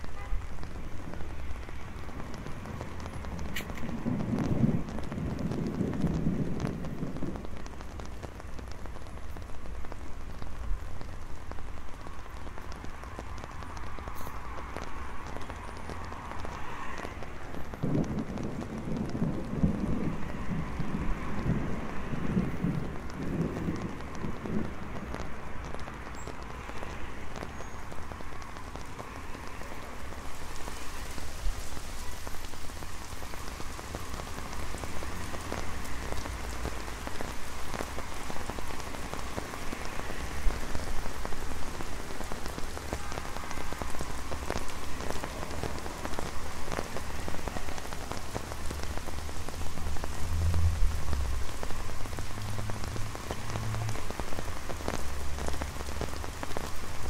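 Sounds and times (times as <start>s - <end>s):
rain on an umbrella: 0.0s - 57.0s
road traffic rumble: 0.0s - 57.0s.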